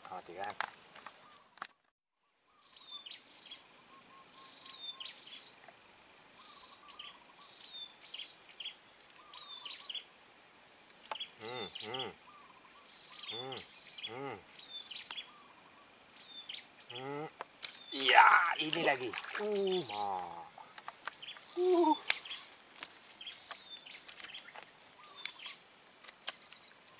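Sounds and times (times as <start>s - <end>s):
insects droning: 0.0s - 26.9s
lower arching bird calls: 11.1s - 22.5s.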